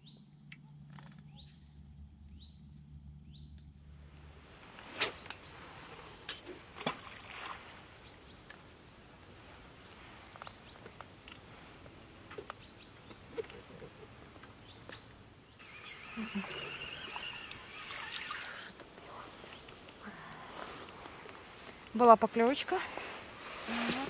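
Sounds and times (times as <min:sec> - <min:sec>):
running river water: 0:04.1 - 0:24.0
bird chirps: 0:14.6 - 0:18.6.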